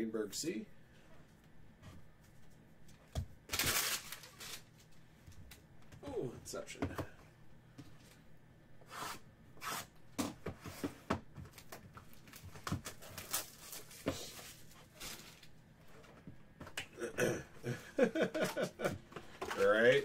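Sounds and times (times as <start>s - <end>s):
plastic shrink wrap crinkling: 3.5s - 4.9s, 11.6s - 15.6s.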